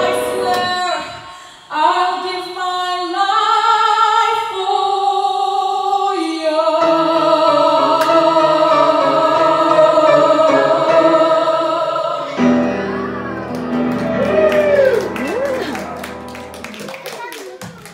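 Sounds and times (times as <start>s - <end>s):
grand piano accompaniment: 0.0s - 1.0s, 6.8s - 17.0s
person singing long notes: 4.6s - 13.5s.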